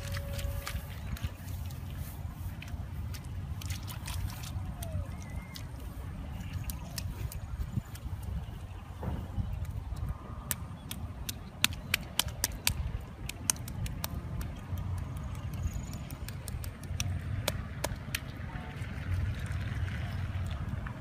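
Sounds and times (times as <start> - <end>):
hands squelching in wet mud: 0.0 - 8.8
steady low rumble: 0.0 - 21.0.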